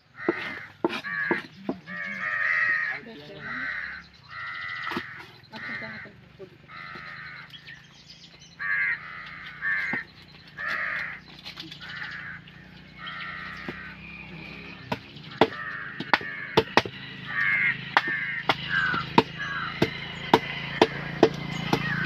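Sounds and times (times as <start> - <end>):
crows cawing: 0.0 - 7.9, 8.5 - 22.0
knives chopping fish on wood: 14.9 - 17.0, 18.0 - 22.0.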